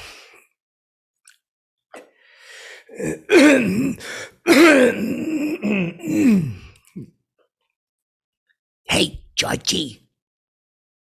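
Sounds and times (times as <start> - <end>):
man grunting and growling: 2.9 - 6.8.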